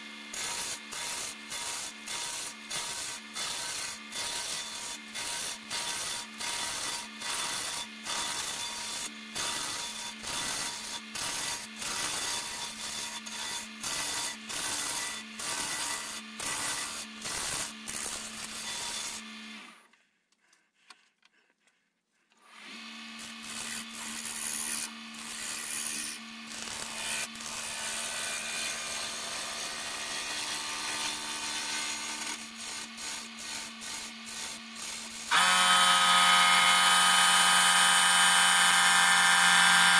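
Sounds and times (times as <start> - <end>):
wood lathe humming: 35.3 - 39.9.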